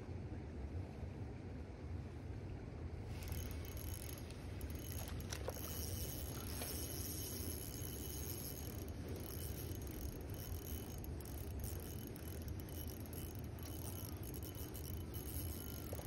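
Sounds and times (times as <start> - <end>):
fishing reel cranking rattle: 3.2 - 16.0.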